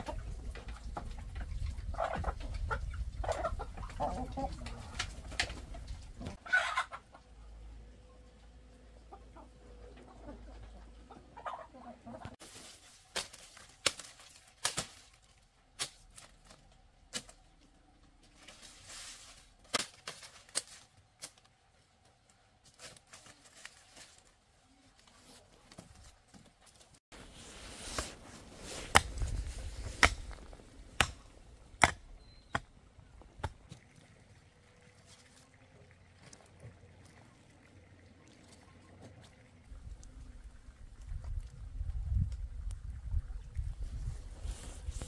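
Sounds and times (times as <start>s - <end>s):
rustling: 18.3s - 21.4s, 22.6s - 31.2s.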